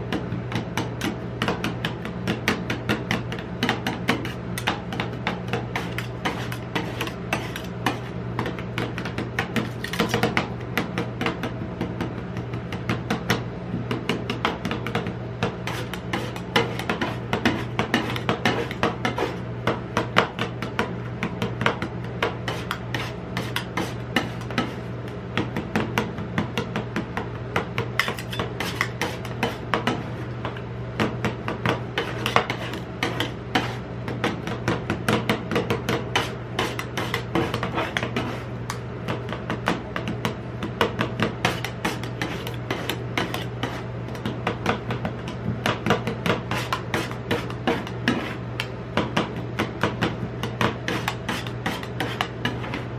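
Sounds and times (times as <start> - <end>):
steady low hum: 0.0 - 52.9
spatula scraping metal plate: 5.7 - 8.1, 15.6 - 19.4, 28.0 - 30.2, 32.0 - 33.8, 36.2 - 38.5, 41.4 - 43.8, 46.5 - 48.4, 50.8 - 52.9.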